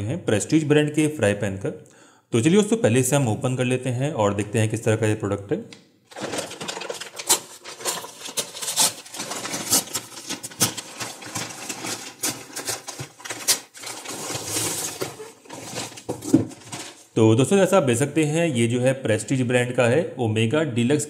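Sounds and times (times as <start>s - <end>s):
paper bag crinkling and rustling: 6.1s - 17.2s.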